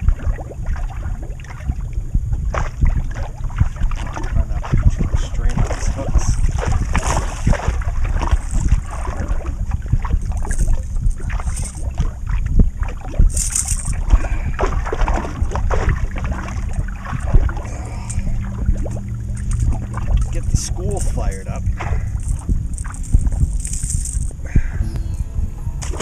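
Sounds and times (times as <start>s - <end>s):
waves lapping against boat: 0.0s - 24.2s
wind buffeting microphone: 0.0s - 24.8s.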